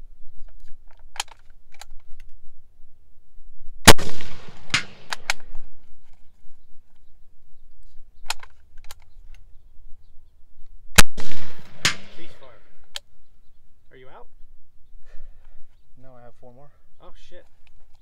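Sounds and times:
rifle shot with echo: 3.8 - 5.6, 11.0 - 12.8.

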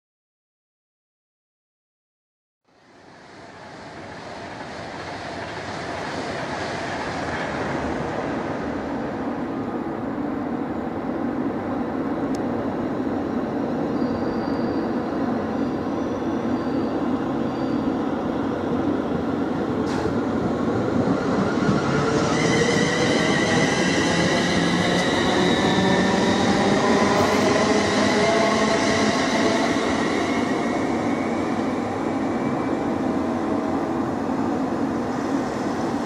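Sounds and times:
diesel train approaching: 2.8 - 36.0
high wheel squeal: 13.9 - 15.0, 15.6 - 18.0.

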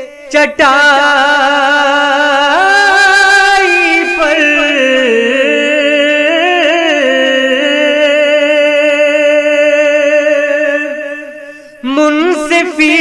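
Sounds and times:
man singing unaccompanied: 0.0 - 13.0.

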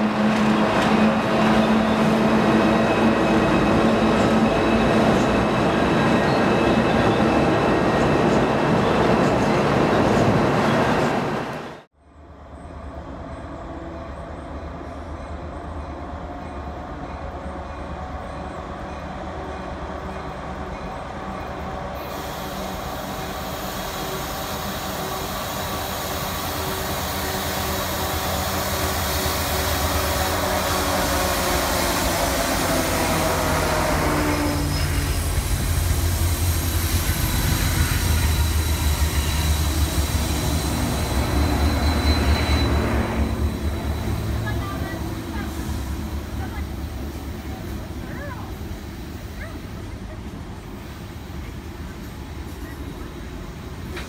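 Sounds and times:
locomotive engines rumbling: 0.0 - 11.8, 12.5 - 54.0
train rolling by: 0.0 - 54.0
faint high squeal: 36.6 - 44.4.

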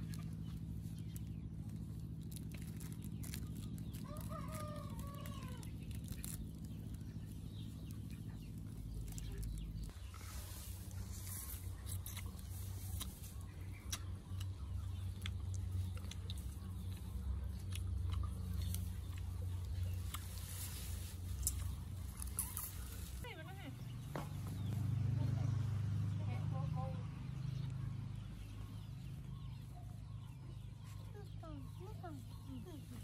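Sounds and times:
small clicks and crackles: 0.0 - 23.3
steady low hum: 0.0 - 33.0
rooster crowing: 4.0 - 5.7.

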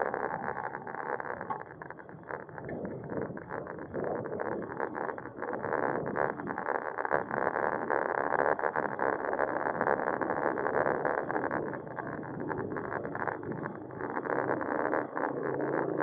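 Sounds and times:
bicycle rattles and clicks: 0.0 - 8.9, 9.7 - 16.0
wind and road noise: 11.1 - 16.0.

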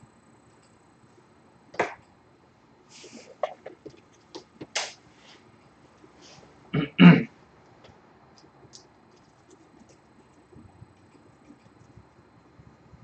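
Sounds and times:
person clearing throat: 6.7 - 7.3.

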